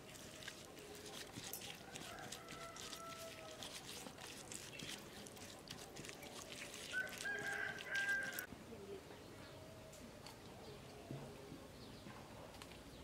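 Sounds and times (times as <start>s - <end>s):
utensil stirring in metal bowl: 0.0s - 8.5s
rooster crowing: 1.8s - 3.5s, 6.9s - 8.5s.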